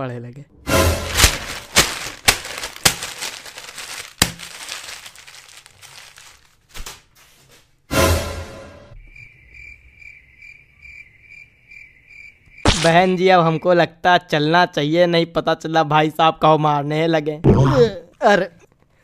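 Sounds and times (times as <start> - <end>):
newspaper pages rustling: 1.0 - 7.7
cricket chirping: 8.9 - 13.7.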